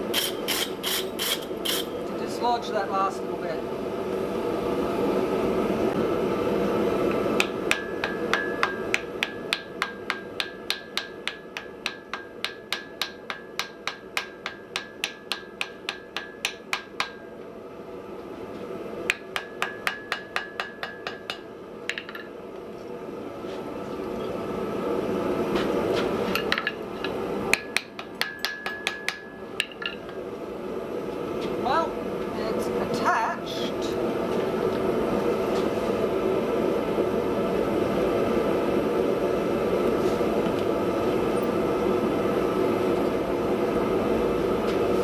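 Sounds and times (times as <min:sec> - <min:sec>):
hammer ringing on anvil: 0:07.7 - 0:17.3, 0:27.6 - 0:29.8.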